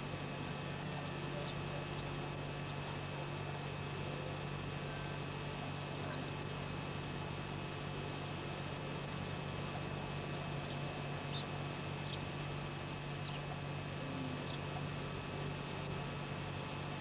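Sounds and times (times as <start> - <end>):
video tape hiss: 0.0 - 17.0
distant birds chirping: 0.8 - 3.1, 4.9 - 7.1, 10.5 - 12.3, 13.1 - 13.6, 14.2 - 14.9.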